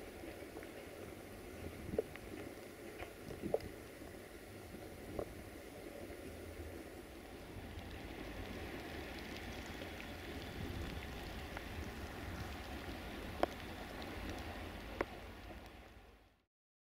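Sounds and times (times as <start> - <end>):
faint hiss: 0.0 - 16.4
low uneven rumble: 0.0 - 16.4
light ticks: 7.7 - 11.7, 12.4 - 16.0.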